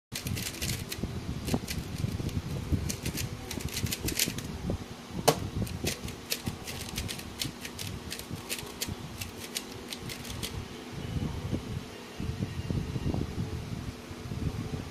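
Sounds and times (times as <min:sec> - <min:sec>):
puzzle cube plastic clicks: 0:00.2 - 0:04.5, 0:05.7 - 0:10.5.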